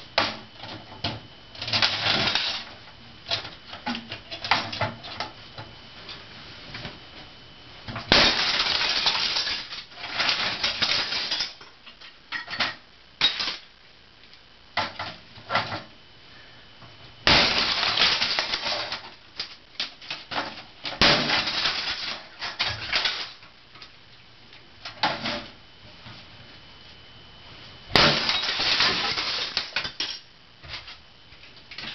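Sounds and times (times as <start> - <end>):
plastic pieces shattering and clattering: 1.6 - 2.7, 8.0 - 13.7, 17.3 - 23.5, 27.9 - 31.0.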